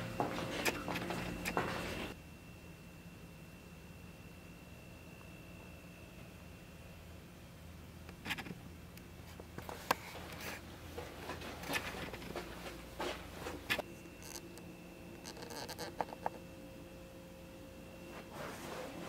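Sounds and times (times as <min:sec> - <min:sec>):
steady hum: 0:00.0 - 0:19.0
soft rustles: 0:18.1 - 0:19.0.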